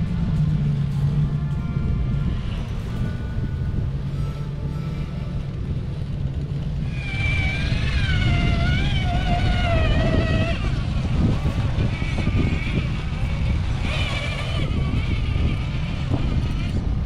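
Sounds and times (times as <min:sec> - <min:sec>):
steady low rumble: 0:00.0 - 0:17.0
electric motor whining: 0:06.8 - 0:17.0.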